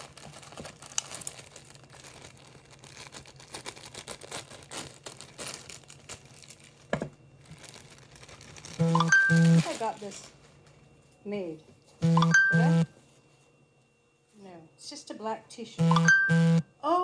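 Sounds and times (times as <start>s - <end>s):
plastic mailer bag crinkling: 0.0s - 10.4s.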